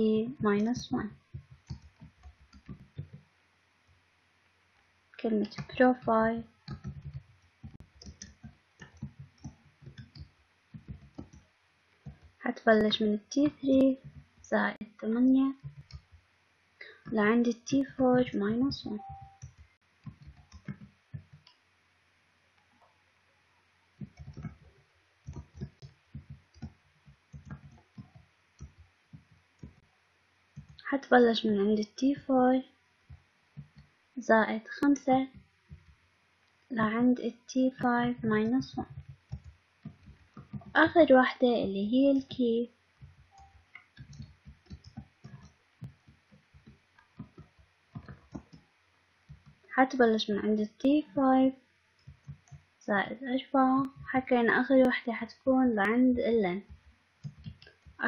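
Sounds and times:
keyboard keys clicking: 0.6s - 3.2s, 5.4s - 11.4s, 12.0s - 14.6s, 15.5s - 16.2s, 16.8s - 21.5s, 24.0s - 29.8s, 30.6s - 30.9s, 37.8s - 41.1s, 43.0s - 48.7s, 52.0s - 52.6s, 56.6s - 58.0s.

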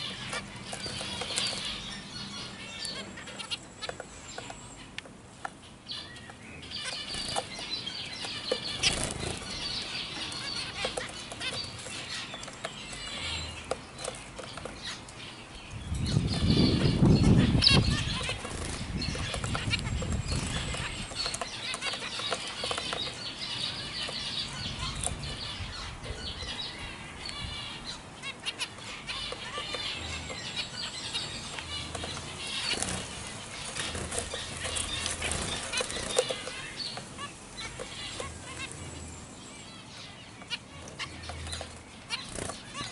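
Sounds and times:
finches chattering calls: 0.0s - 42.9s
wings fluttering: 8.5s - 9.8s, 16.2s - 23.1s, 31.5s - 38.8s, 41.3s - 42.9s.

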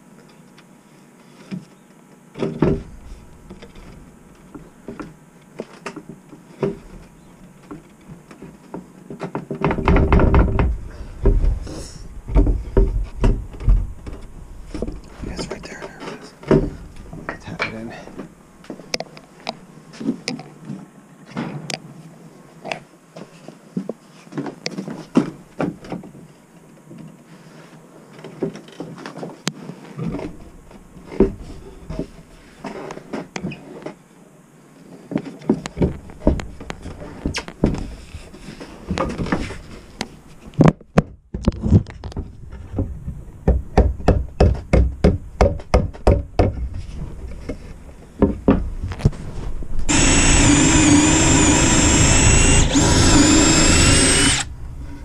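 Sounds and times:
rubber mallet knocking plywood: 43.4s - 46.7s
power drill drilling wood: 49.9s - 54.5s.

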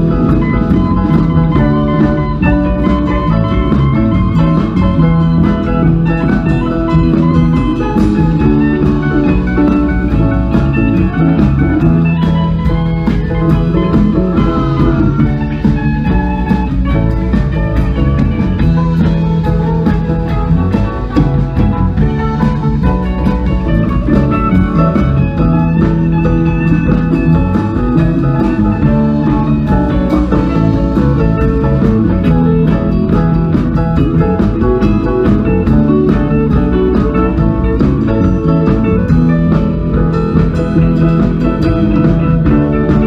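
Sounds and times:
drum kit beat: 0.0s - 43.0s
electric bass: 0.0s - 43.0s
electric guitars: 0.0s - 43.0s
keyboard: 0.0s - 43.0s.

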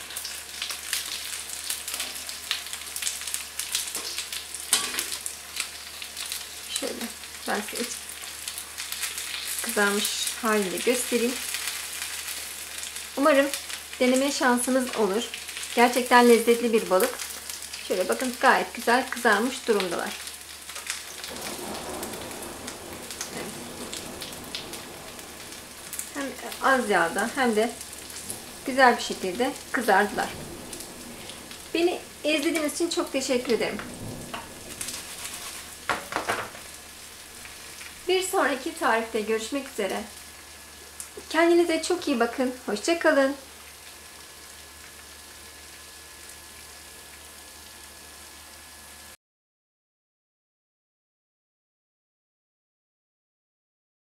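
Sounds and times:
fish frying in oil: 0.0s - 49.2s.

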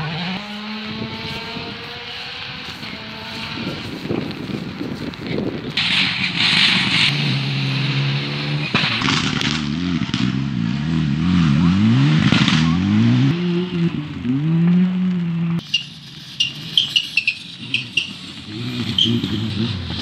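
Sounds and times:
rally car engine revving: 0.0s - 20.0s
sharp cracks: 5.1s - 7.2s, 8.6s - 10.4s.

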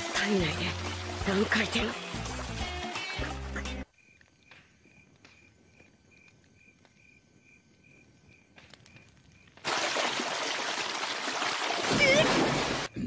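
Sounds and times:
faint cricket chirping: 3.8s - 9.6s.

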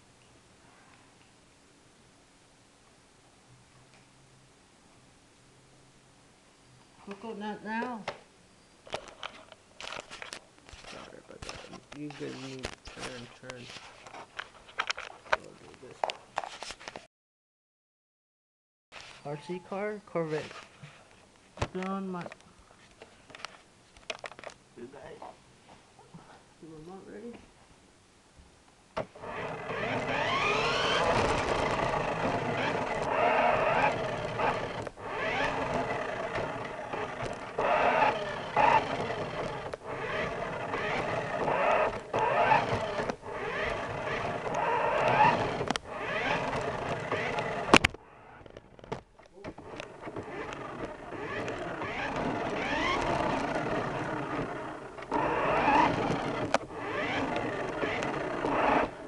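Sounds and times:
toy car motor whining: 29.1s - 48.7s, 49.5s - 59.0s.

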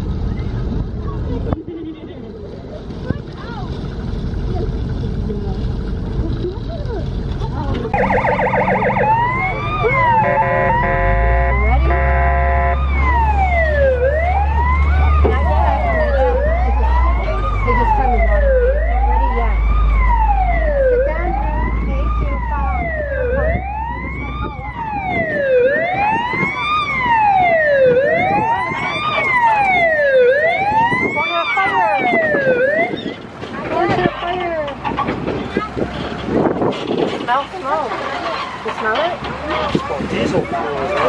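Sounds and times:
low motor rumble: 0.0s - 41.0s
electronic siren wailing: 7.9s - 33.1s.

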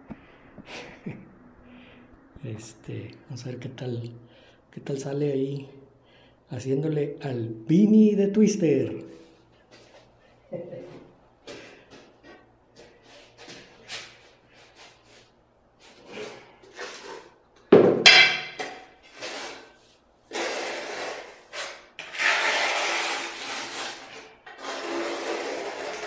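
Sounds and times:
trowel scraping mortar on tile: 12.8s - 17.4s, 19.0s - 26.0s.

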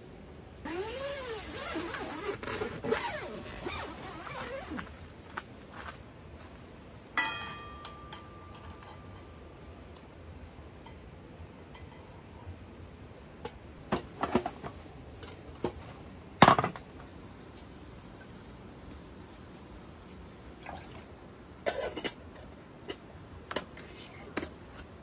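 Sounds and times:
metal camping gear clinking: 7.2s - 9.3s.

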